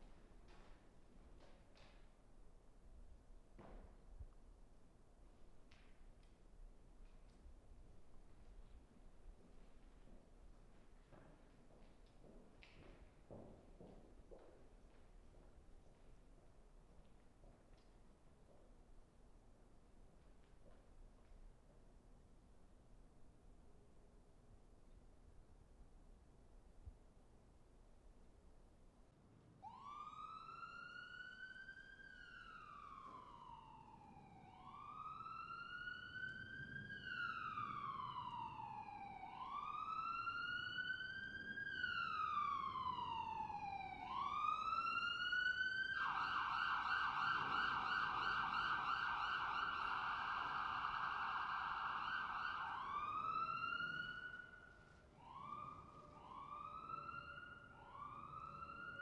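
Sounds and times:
police siren wailing and yelping: 29.6s - 54.6s, 55.2s - 59.0s.

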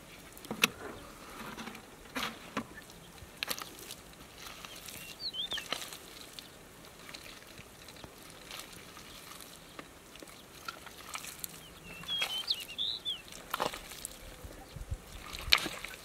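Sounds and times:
hands squelching wet mud: 2.4s - 16.0s
bird chirping: 4.6s - 5.9s, 11.5s - 13.4s.

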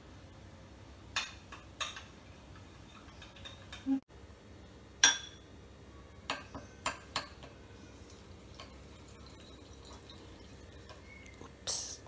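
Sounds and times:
spoon clinking on glass bowl: 8.1s - 11.2s.

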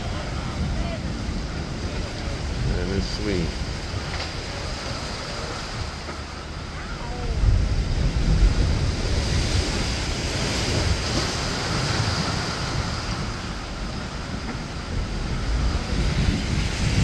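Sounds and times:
surf washing: 0.0s - 17.0s
wind rumbling on microphone: 0.0s - 17.0s.

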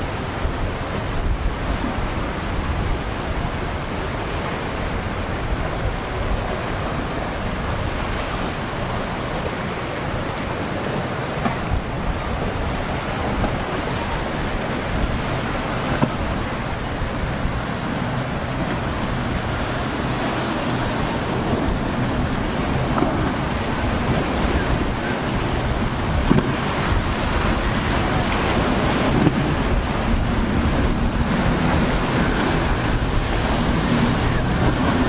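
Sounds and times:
breaking waves: 0.0s - 35.0s
wind buffeting microphone: 0.0s - 35.0s.

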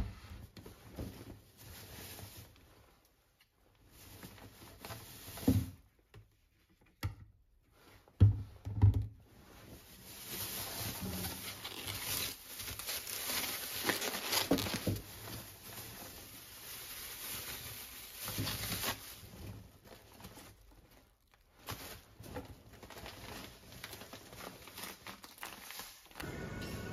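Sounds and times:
plastic bags rustling: 9.3s - 26.9s.

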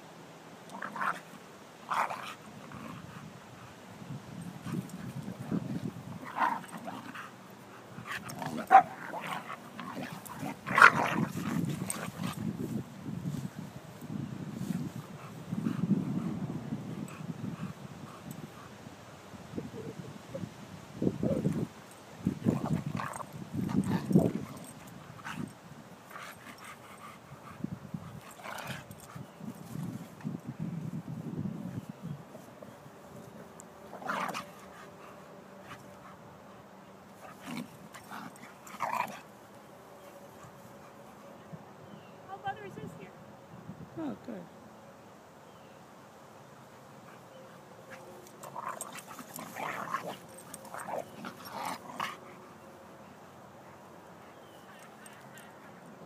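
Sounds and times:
dogs tussling: 0.7s - 3.1s, 4.4s - 12.9s, 21.3s - 30.4s, 32.3s - 36.2s, 37.1s - 39.4s, 47.1s - 52.5s
dogs barking and yipping: 6.2s - 12.4s, 47.0s - 52.6s.

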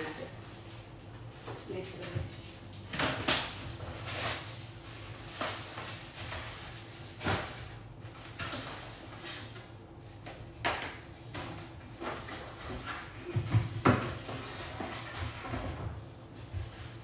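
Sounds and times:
objects knocking and bumping: 10.2s - 16.8s.

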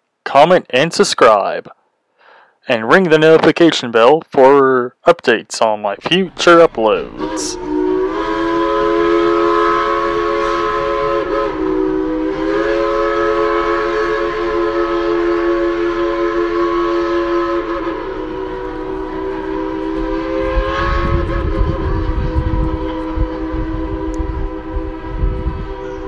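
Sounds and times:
locomotive air horn blasts: 6.4s - 26.0s.

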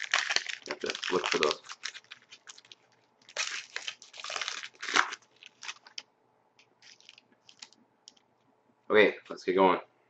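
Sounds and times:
foil wrapper crinkling and tearing: 0.0s - 6.0s, 6.8s - 8.2s.

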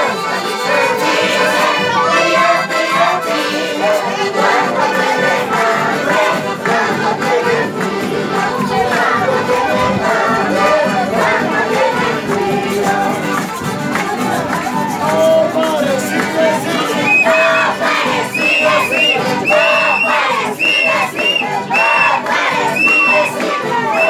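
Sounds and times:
accordions: 0.0s - 24.0s
acoustic guitars: 0.0s - 24.0s.

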